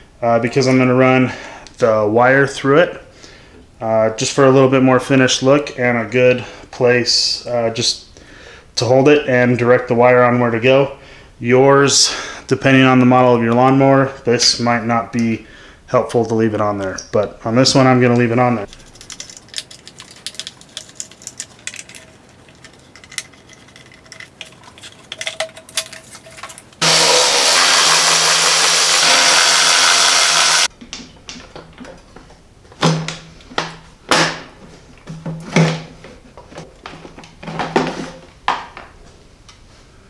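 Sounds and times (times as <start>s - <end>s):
parts clicking and rattling: 18.7s - 26.8s
cordless power tool running: 26.8s - 30.7s.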